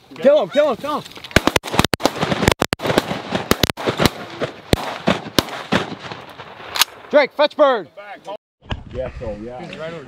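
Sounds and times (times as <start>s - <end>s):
shotgun shots: 1.3s - 7.1s.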